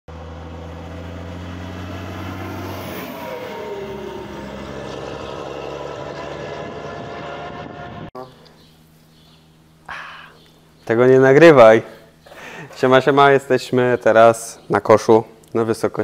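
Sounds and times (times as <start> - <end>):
truck diesel engine running: 0.1 - 8.1.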